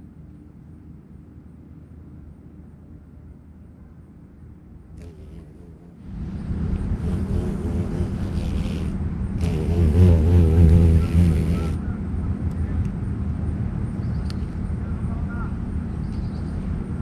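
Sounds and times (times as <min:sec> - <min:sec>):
wasp buzzing in flight: 0:05.0 - 0:11.8.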